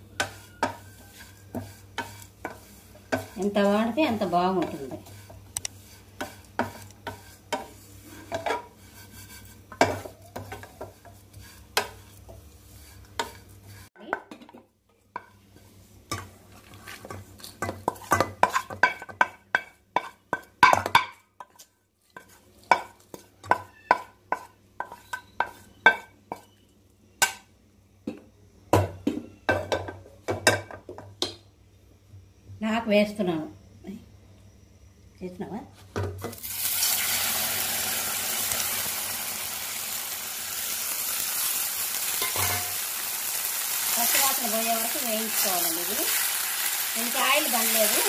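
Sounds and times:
scraping into a steel bowl: 0:00.1 - 0:13.9
wooden spatula scraping steel pan: 0:00.1 - 0:13.9, 0:21.4 - 0:26.6.

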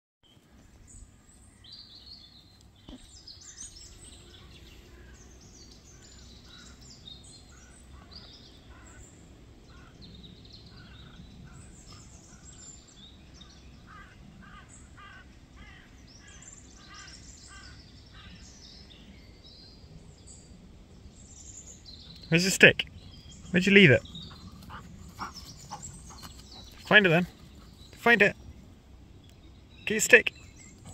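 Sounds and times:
birds chirping: 0:00.2 - 0:30.9.

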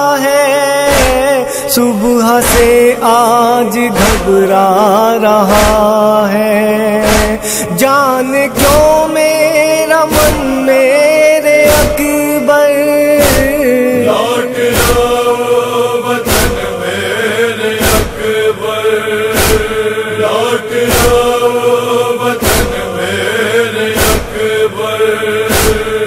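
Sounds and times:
male chorus chanting: 0:00.0 - 0:26.0
chest-beating thumps: 0:00.9 - 0:01.3, 0:02.4 - 0:02.9, 0:04.0 - 0:04.4, 0:07.0 - 0:07.6, 0:08.6 - 0:09.0, 0:11.7 - 0:12.2, 0:13.2 - 0:15.3, 0:16.2 - 0:16.8, 0:17.8 - 0:18.4, 0:19.3 - 0:19.9, 0:20.8 - 0:21.5, 0:22.4 - 0:22.9, 0:23.9 - 0:24.6, 0:25.5 - 0:26.0.

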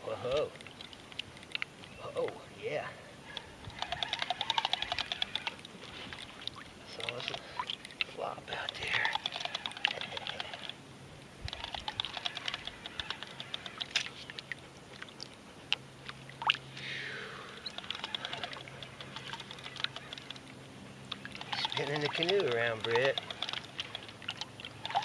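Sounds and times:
low steady hum: 0:00.0 - 0:25.0
fishing reel clicking: 0:03.7 - 0:05.6, 0:08.7 - 0:10.8, 0:11.5 - 0:13.9, 0:17.7 - 0:20.4, 0:21.3 - 0:25.0.

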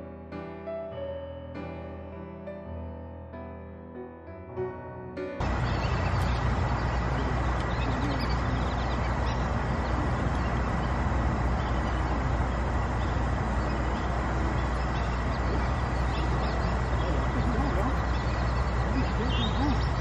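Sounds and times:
ducks quacking faintly: 0:05.4 - 0:20.0
outdoor rumble and hiss: 0:05.4 - 0:20.0.

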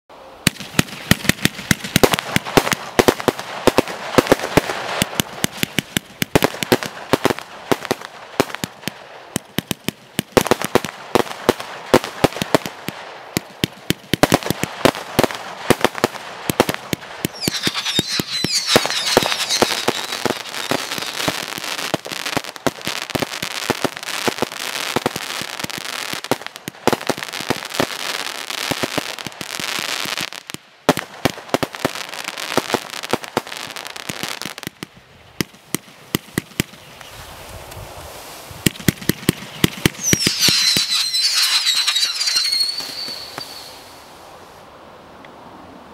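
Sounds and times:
firework launches and bursts: 0:00.4 - 0:34.8, 0:35.4 - 0:44.6
firework whistling: 0:17.2 - 0:22.3, 0:38.2 - 0:44.4.

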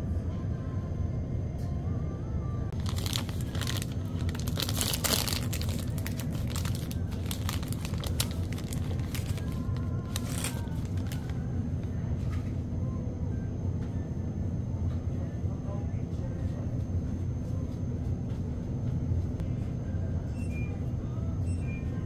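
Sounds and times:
steady low hum: 0:00.0 - 0:22.0
snack wrapper crinkling and tearing: 0:02.8 - 0:11.4.

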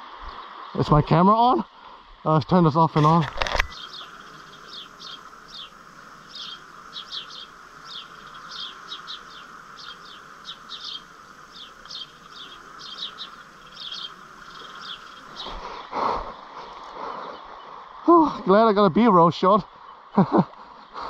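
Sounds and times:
birds chirping: 0:00.0 - 0:21.0
faint hiss: 0:00.0 - 0:21.0.

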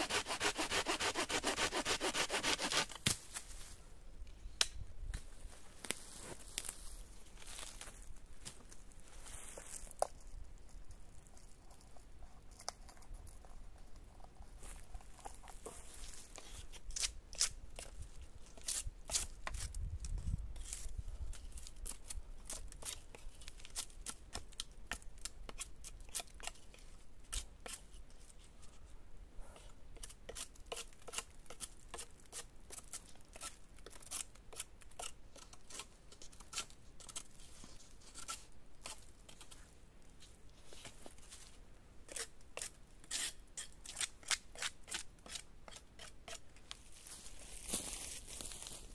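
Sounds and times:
knife whittling wood: 0:00.0 - 0:02.9.

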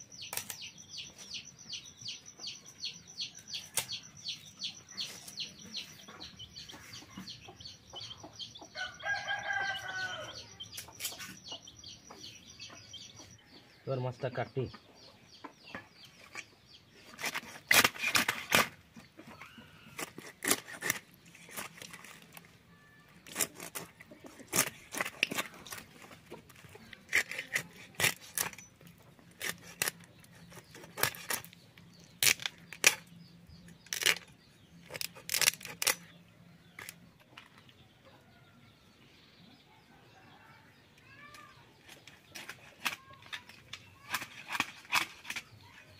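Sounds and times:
blade crunching through fish: 0:19.9 - 0:22.4.

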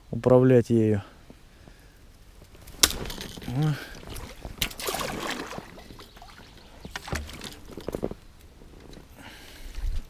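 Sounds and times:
light splashes: 0:02.8 - 0:07.8
paddle dipping into water: 0:03.1 - 0:07.9
water trickling off paddle: 0:03.1 - 0:07.9.

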